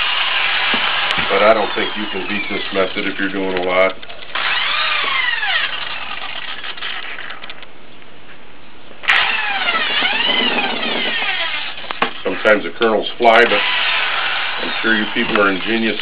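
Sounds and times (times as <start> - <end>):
drill motor whine: 0.0 - 3.5, 4.3 - 7.3, 9.1 - 12.5, 13.4 - 16.0.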